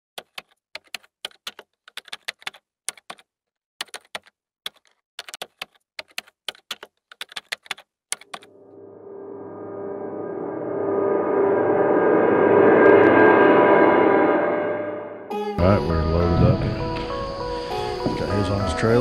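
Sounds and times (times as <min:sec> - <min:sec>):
keyboard key clicks: 0:00.2 - 0:08.5.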